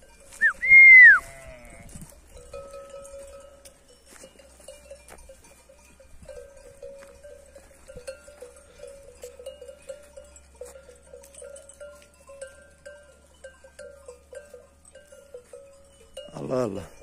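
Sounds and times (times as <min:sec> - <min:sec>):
sheep bells clanking: 0:00.0 - 0:17.0.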